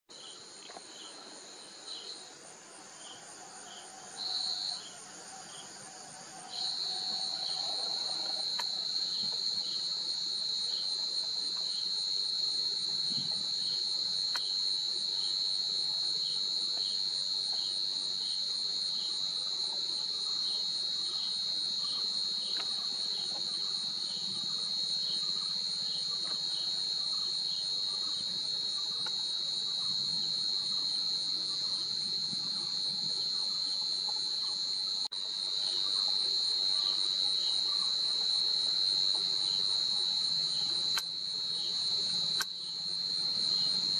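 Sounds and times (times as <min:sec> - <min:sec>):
faint insect chirp: 0:00.1 - 0:43.9.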